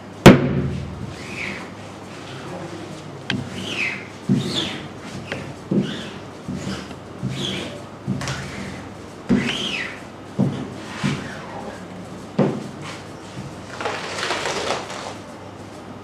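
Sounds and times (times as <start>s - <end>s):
screen rustling: 12.8s - 15.3s.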